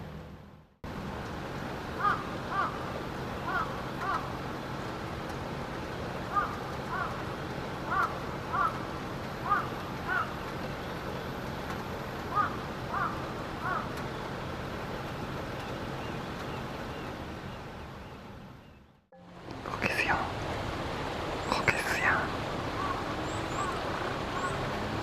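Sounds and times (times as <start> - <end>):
crow cawing: 2.0 - 2.8, 3.4 - 4.3, 6.3 - 7.2, 7.9 - 8.8, 9.4 - 10.4, 12.3 - 13.9, 22.8 - 24.6.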